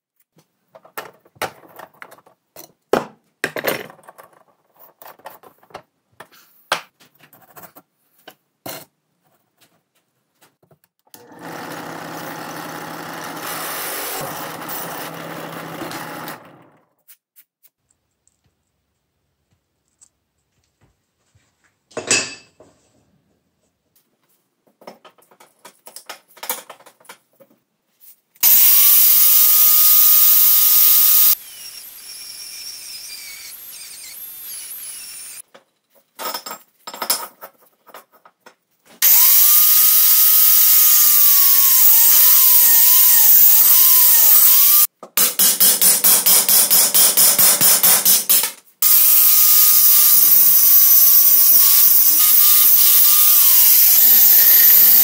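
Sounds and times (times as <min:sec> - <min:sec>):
angle grinder cutting steel: 0:13.2 - 0:16.7, 0:28.4 - 0:35.4, 0:39.0 - 0:44.9, 0:46.5 - 0:55.0.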